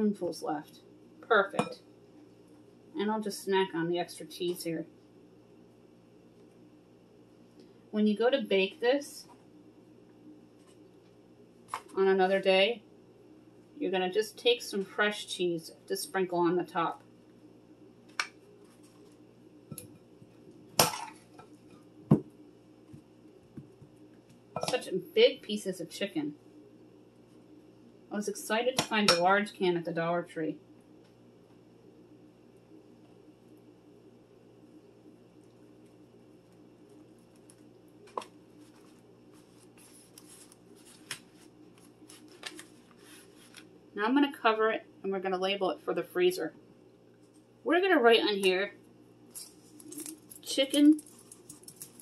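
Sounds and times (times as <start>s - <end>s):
hands handling foil tray: 37.3s - 43.7s.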